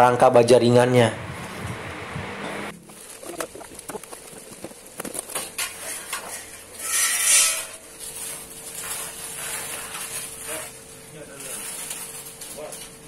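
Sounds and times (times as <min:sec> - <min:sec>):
metal scraping on plywood: 0:05.3 - 0:10.8.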